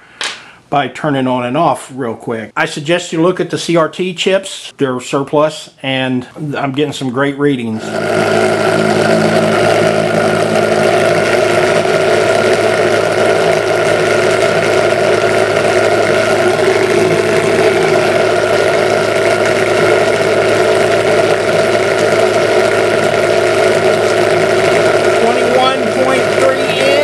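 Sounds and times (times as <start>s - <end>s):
pulse motor humming: 7.7s - 27.0s.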